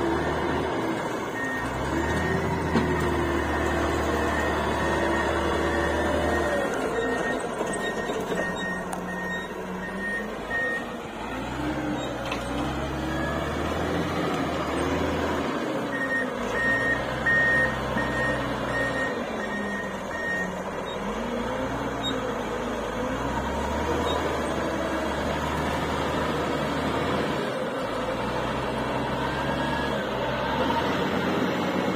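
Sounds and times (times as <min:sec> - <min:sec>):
diesel engine revving: 0:00.0 - 0:31.9
reversing alarm beeps: 0:01.3 - 0:10.9, 0:15.9 - 0:21.1.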